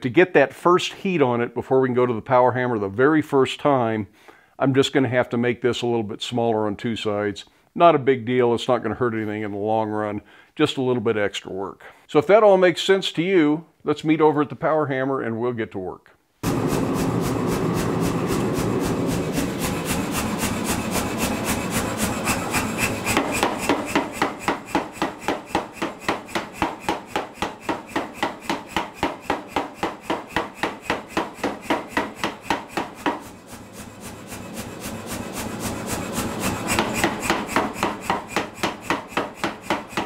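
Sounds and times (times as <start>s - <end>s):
machine running: 16.4s - 40.0s
power hammer striking hot steel: 16.4s - 40.0s.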